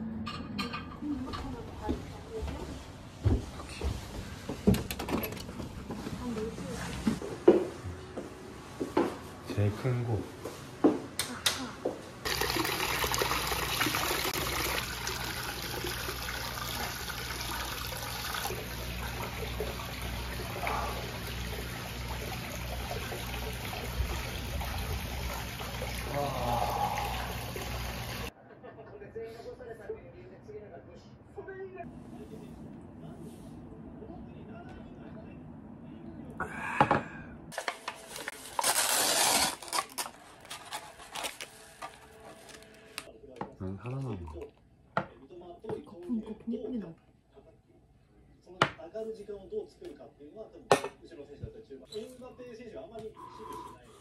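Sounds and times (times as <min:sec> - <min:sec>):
water pouring into rock bath: 0:12.2 - 0:28.3
packaging crinkling: 0:37.6 - 0:43.1
packaging tearing open: 0:37.6 - 0:43.1.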